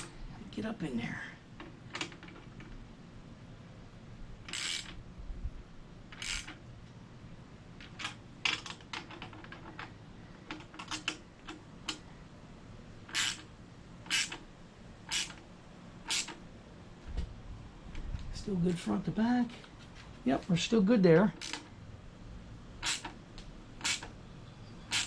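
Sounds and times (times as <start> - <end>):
socket ratchet clicking: 4.5 - 5.0, 6.1 - 6.6, 13.1 - 13.5, 14.1 - 14.4, 15.1 - 15.4, 16.1 - 16.4, 21.4 - 21.7, 22.8 - 23.2, 23.8 - 24.1.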